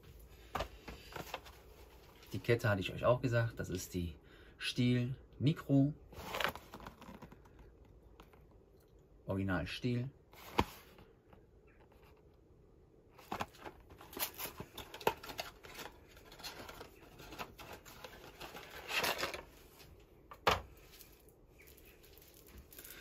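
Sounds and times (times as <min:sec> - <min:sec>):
packaging rustling and scraping: 0:06.1 - 0:08.4, 0:13.2 - 0:19.9, 0:20.8 - 0:23.0.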